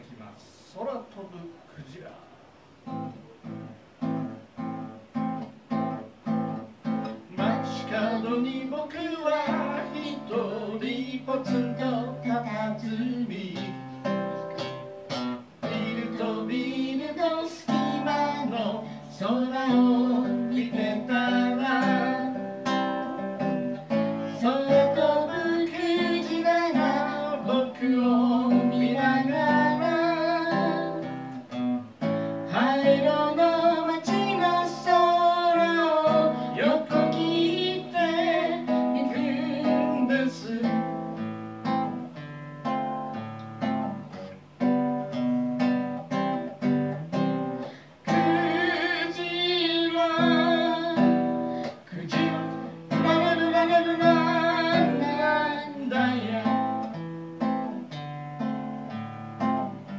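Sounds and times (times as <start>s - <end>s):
acoustic guitar strumming: 2.8s - 59.9s
man singing: 7.3s - 14.2s, 15.6s - 23.2s, 24.2s - 31.1s, 32.4s - 41.1s, 48.0s - 57.0s.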